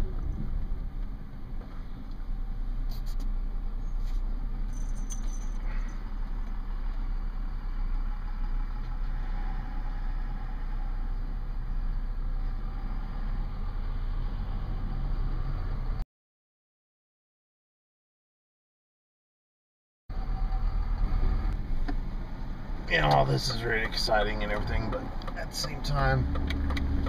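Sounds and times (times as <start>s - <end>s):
wind rumble on microphone: 0.0s - 2.3s.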